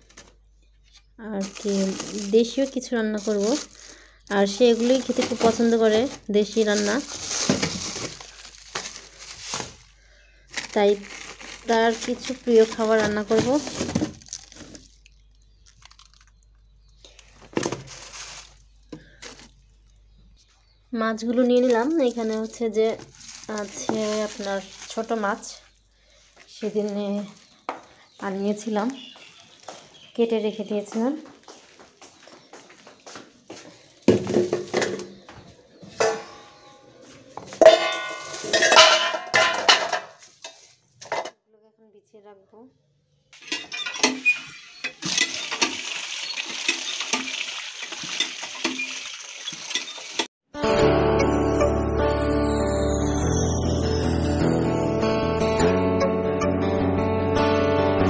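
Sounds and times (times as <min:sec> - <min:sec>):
plastic bags crinkling: 0:00.0 - 0:20.2, 0:21.3 - 0:27.6
steel bowl clanking in sink: 0:37.6 - 0:40.2, 0:43.4 - 0:50.3.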